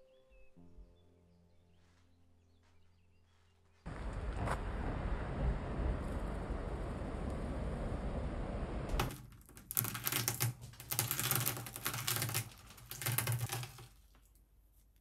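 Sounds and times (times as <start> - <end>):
outdoor background noise: 1.4 - 15.0
egg shell cracking: 9.0 - 14.5.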